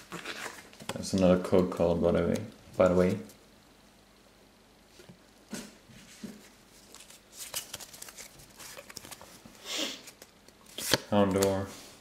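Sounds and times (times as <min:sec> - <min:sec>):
cards and wrapper rustling: 0:00.0 - 0:01.2, 0:06.8 - 0:11.6.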